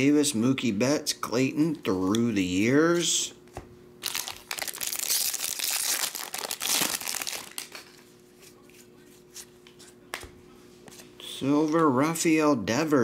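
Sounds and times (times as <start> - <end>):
foil wrapper crinkling and tearing: 4.0 - 8.0.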